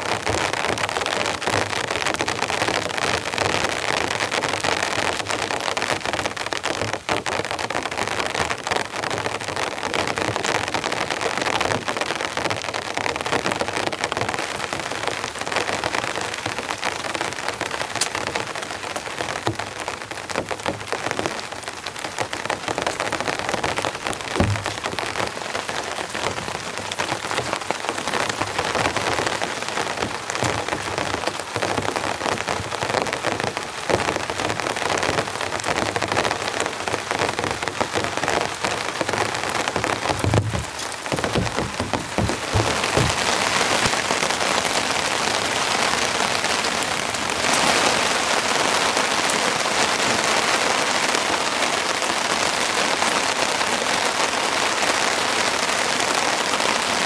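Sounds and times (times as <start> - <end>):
steady rain patter: 0.0 - 57.0
deep thump: 24.3 - 25.1, 40.2 - 43.5.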